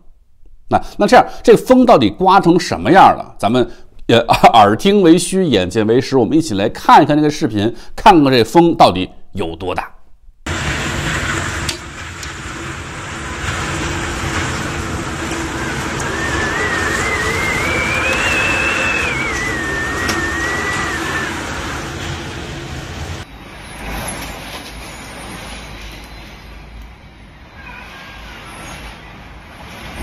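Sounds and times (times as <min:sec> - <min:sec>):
heavy rain: 0:10.5 - 0:26.2
wind noise: 0:12.2 - 0:23.2
high wavering whistle: 0:15.5 - 0:21.9.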